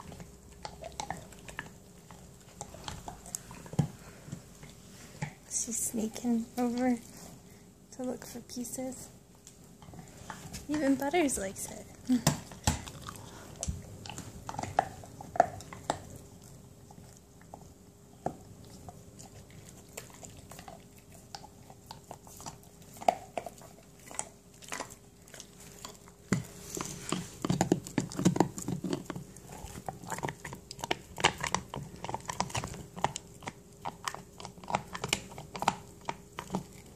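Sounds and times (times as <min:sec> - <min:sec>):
dog gnawing antler: 0:00.0 - 0:07.5, 0:09.4 - 0:36.9.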